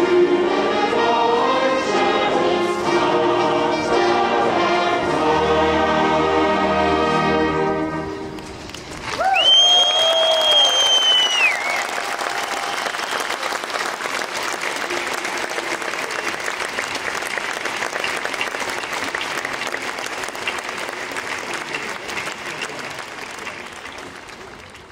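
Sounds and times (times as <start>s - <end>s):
audience applauding: 8.3s - 24.9s.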